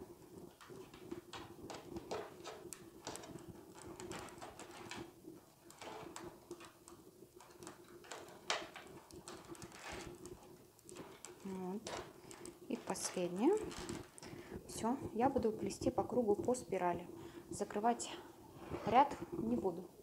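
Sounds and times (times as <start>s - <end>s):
paper tubes clicking and rustling: 0.0s - 14.4s.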